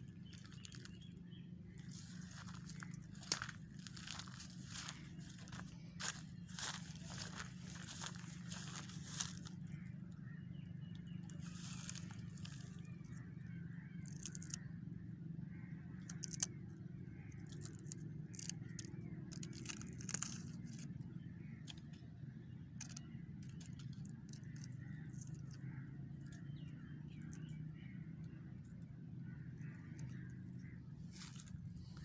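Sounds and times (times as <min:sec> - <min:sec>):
crackles and snaps: 0:00.0 - 0:01.1, 0:11.4 - 0:14.7, 0:15.9 - 0:22.1, 0:22.8 - 0:28.4
steady low rumble: 0:00.0 - 0:32.0.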